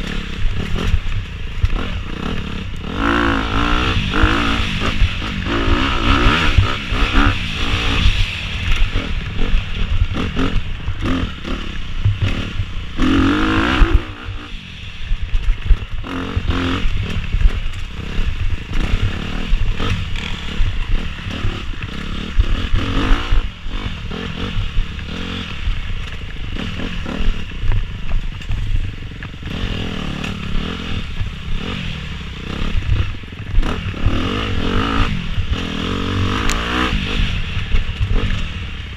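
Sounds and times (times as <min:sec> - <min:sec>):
dirt bike engine revving: 0:00.0 - 0:38.9.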